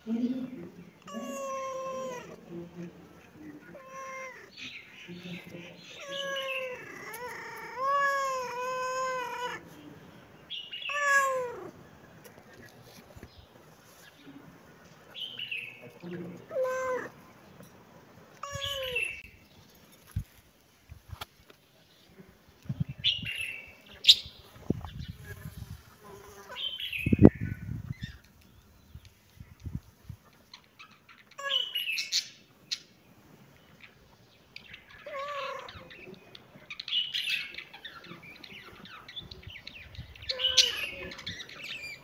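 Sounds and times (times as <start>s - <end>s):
high-pitched animal calls: 1.0s - 2.4s, 5.8s - 9.8s, 10.7s - 11.7s, 34.9s - 36.0s, 40.2s - 42.0s
cat meowing: 1.1s - 2.4s, 10.9s - 11.7s, 35.0s - 35.8s.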